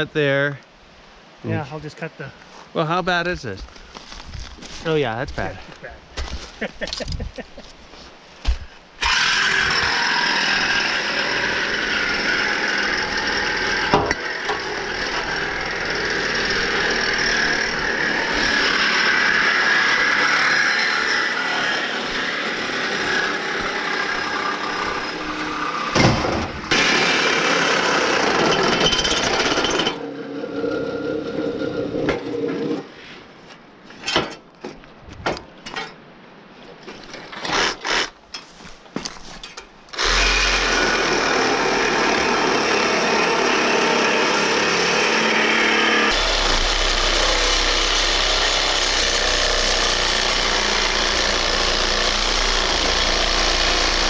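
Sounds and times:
reciprocating saws cutting steel: 9.0 - 26.0, 26.6 - 32.9, 37.3 - 38.2, 40.0 - 54.0
metal clanks and knocks: 34.0 - 36.0.

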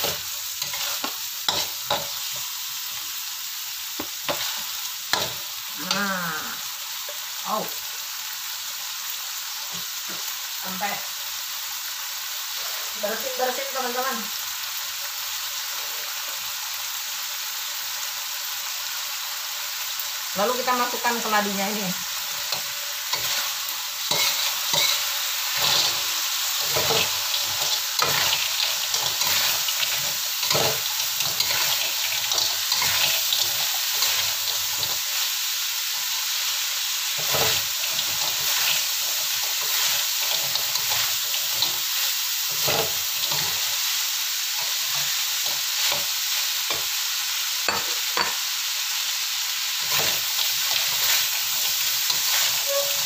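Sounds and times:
metal spatula scraping a wok: 0.0 - 2.4, 22.3 - 35.1, 37.2 - 41.9, 42.5 - 43.7, 49.8 - 53.0
food sizzling: 0.0 - 53.0.

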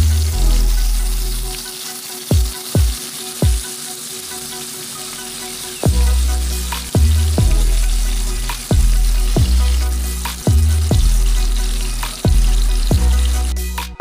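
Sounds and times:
oil sizzling in a pan: 0.0 - 13.9
background music: 0.0 - 14.0
deep bass note: 5.9 - 11.5.

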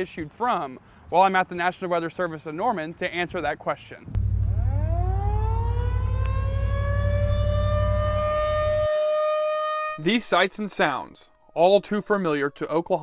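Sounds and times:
loud low rumble: 4.1 - 8.9
warning siren wailing: 4.2 - 10.1.

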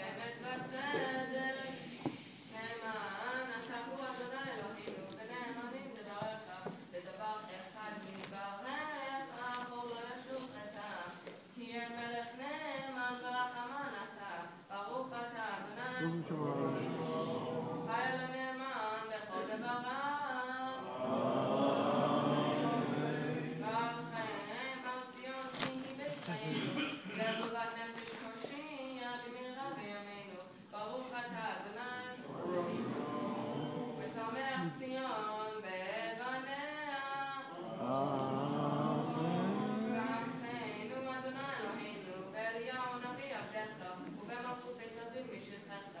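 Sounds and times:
boy chanting scripture: 15.2 - 29.0, 31.8 - 42.2.

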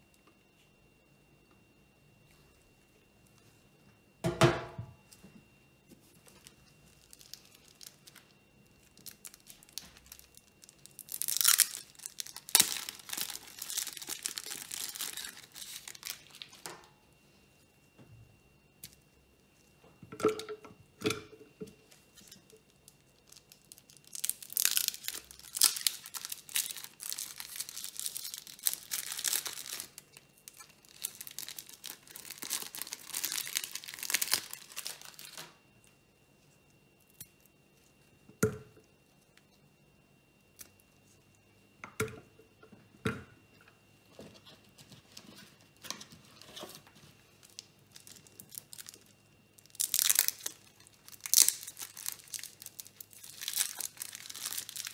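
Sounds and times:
foil wrapper crinkling and tearing: 6.2 - 16.7, 21.9 - 35.6, 45.8 - 54.9.

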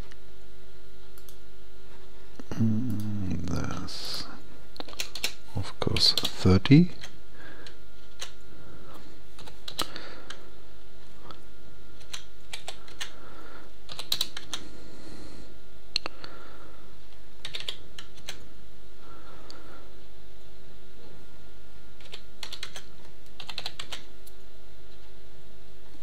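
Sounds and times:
faint steady hum: 0.0 - 26.0
keyboard keys tapping: 17.4 - 18.4.

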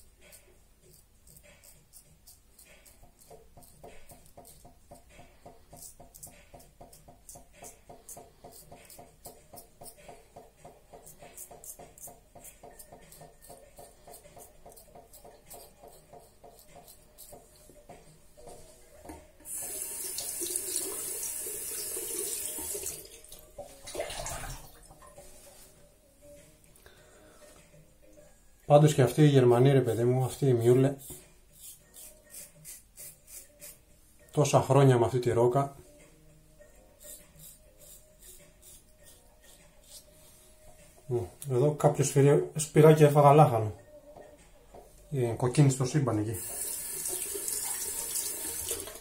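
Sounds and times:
razor scraping stubble: 0.0 - 10.2, 10.9 - 18.2, 29.4 - 33.8, 37.0 - 40.3
water splashing: 23.8 - 24.9.

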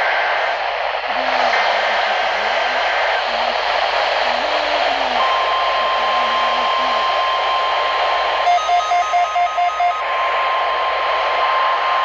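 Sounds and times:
radio static hiss: 0.0 - 8.6
high-pitched alert tone: 8.5 - 10.0
quick beeps: 8.5 - 10.0.

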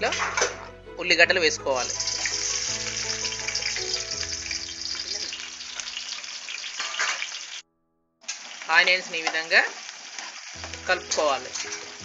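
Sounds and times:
onions sizzling in oil: 1.8 - 7.6, 8.3 - 12.0.

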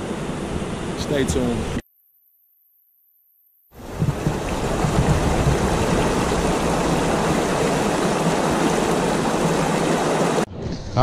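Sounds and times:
waterfall roaring: 3.8 - 10.5.

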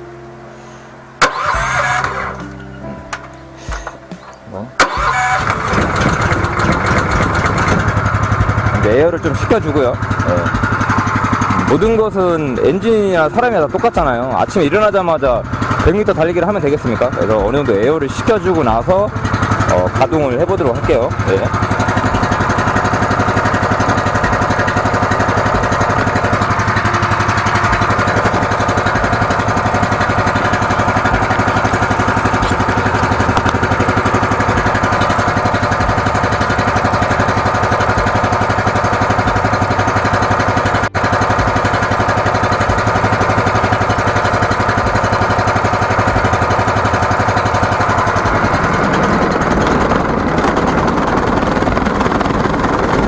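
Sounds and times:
engine running steadily: 0.0 - 53.0.

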